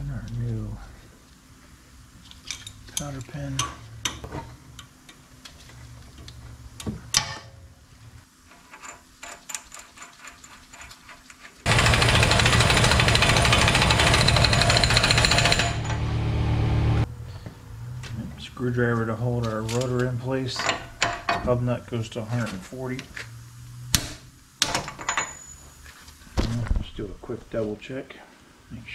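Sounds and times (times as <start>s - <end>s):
tools clinking and knocking: 2.3s - 4.9s, 24.7s - 25.6s
air wrench running: 11.7s - 16.0s.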